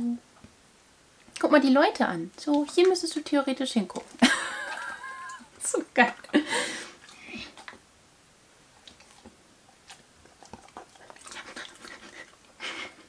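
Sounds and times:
dog chewing treat: 8.8 - 12.7.

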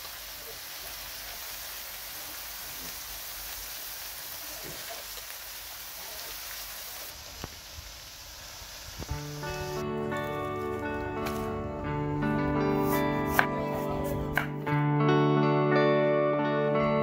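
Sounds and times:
food sizzling in a wok: 0.0 - 11.5.

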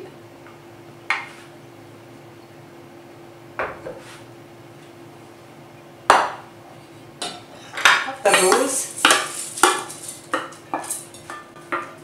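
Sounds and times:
faint steady hum: 0.0 - 12.0
bowls knocking on counter: 6.1 - 6.4.

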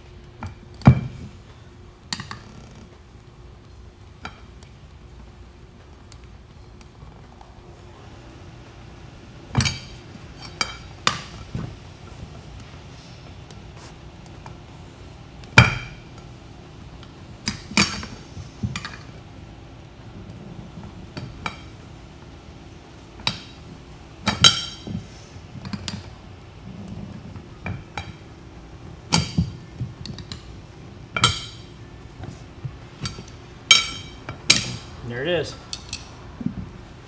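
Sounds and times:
tire iron clinking on metal rim: 24.2 - 25.0, 31.1 - 31.8, 33.0 - 34.9.

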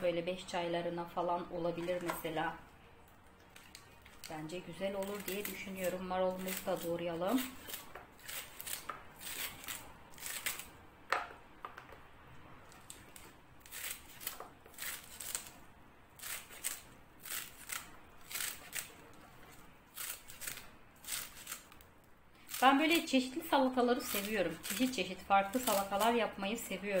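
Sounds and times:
knife slicing crisp lettuce: 4.9 - 10.7, 12.7 - 15.6, 16.2 - 21.8, 23.9 - 27.0.

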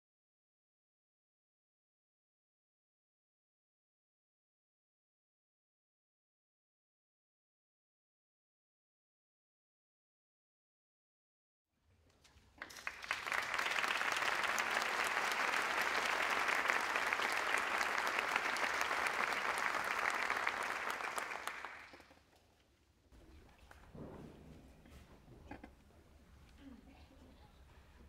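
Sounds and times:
audience applauding: 12.6 - 22.2.

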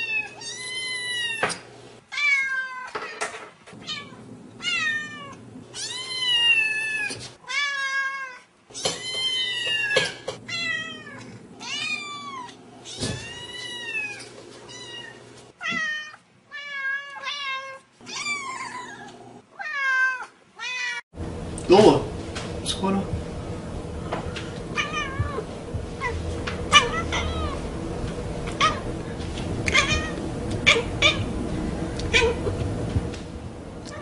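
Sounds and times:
cats meowing: 0.0 - 1.5, 2.1 - 2.9, 3.8 - 21.0, 24.7 - 27.6, 29.6 - 31.3, 32.0 - 32.5.

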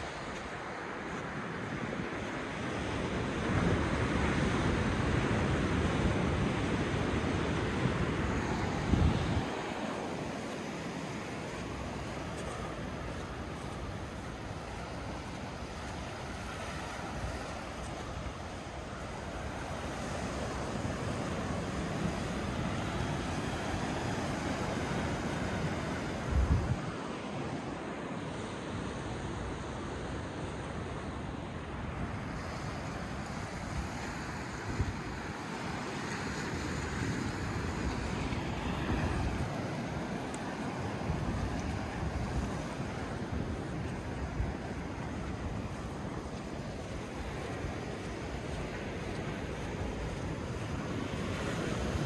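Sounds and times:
wind on microphone: 0.0 - 10.9, 11.6 - 27.7
ocean surf breaking on shore: 0.0 - 52.0.

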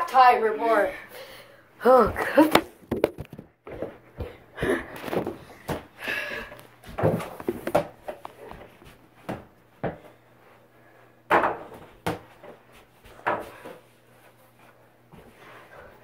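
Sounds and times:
knocks and thumps: 2.1 - 4.4.

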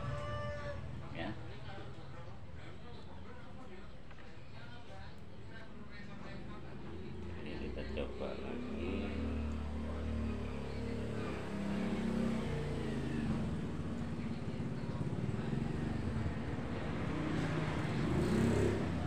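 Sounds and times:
engine humming steadily: 6.6 - 19.0.

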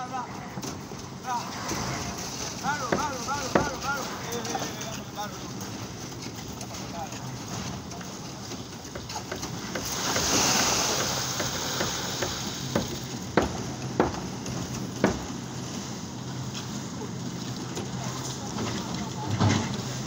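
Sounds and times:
wet concrete sloshing: 1.3 - 13.2
metal knocks of shovels: 1.7 - 5.4.

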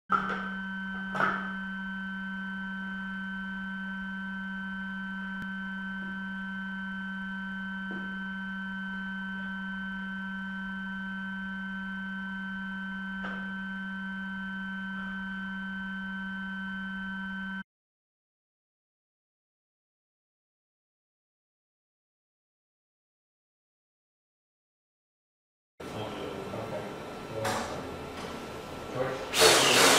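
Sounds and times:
electrical hum with whines: 0.1 - 17.6, 25.8 - 29.9.

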